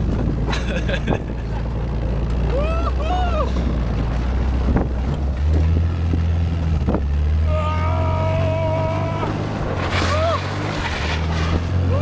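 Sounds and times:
vehicle engine drone: 0:00.0 - 0:12.0
wind buffeting microphone: 0:03.5 - 0:07.2.

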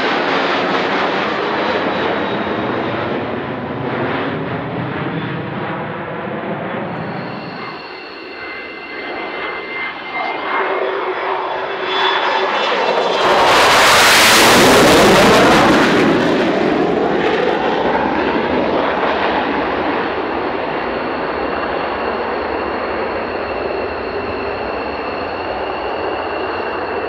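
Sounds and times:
fighter jets flying past: 0:00.0 - 0:27.0.

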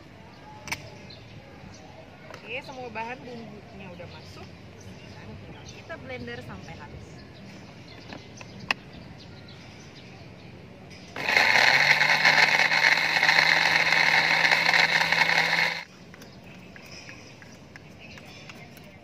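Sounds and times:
blender motor grinding: 0:11.2 - 0:15.9.

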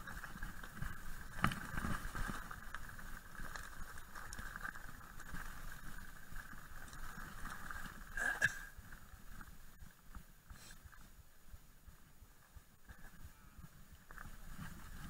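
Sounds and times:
tyres on loose gravel: 0:00.0 - 0:15.0.

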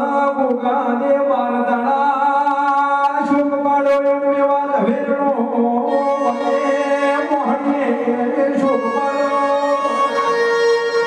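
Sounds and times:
devotional folk music: 0:00.0 - 0:11.0
bowed string instrument melody: 0:05.9 - 0:11.0.

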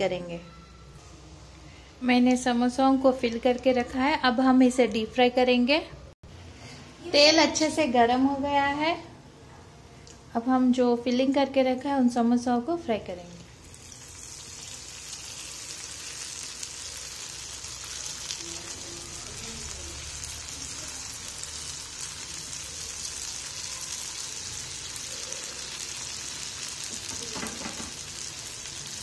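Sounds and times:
samosas sizzling in hot oil: 0:13.5 - 0:29.0.

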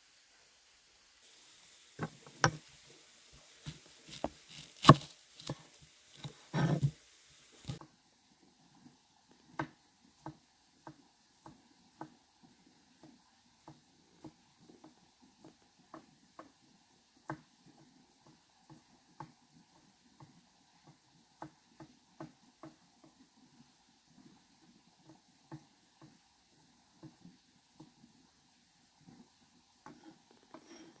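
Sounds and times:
faint irregular ticks and taps: 0:02.0 - 0:02.7, 0:07.6 - 0:31.0.

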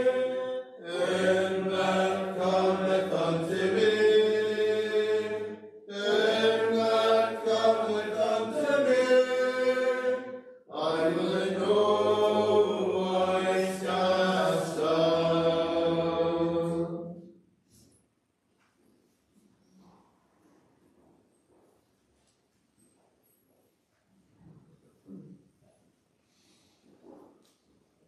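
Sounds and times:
congregation singing a hymn: 0:00.0 - 0:17.2.

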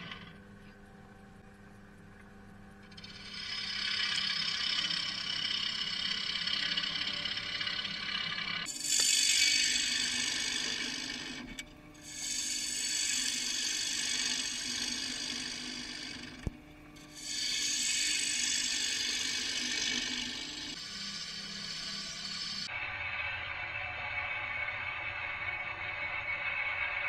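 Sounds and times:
gouge shearing wood on lathe: 0:02.9 - 0:16.5, 0:17.2 - 0:22.7.

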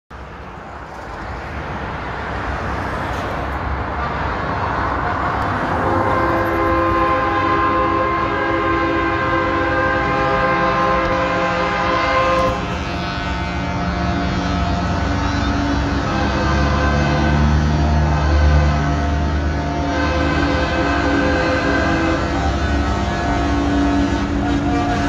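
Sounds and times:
truck engine and road noise: 0:00.1 - 0:25.0
air horns chord: 0:05.8 - 0:25.0.

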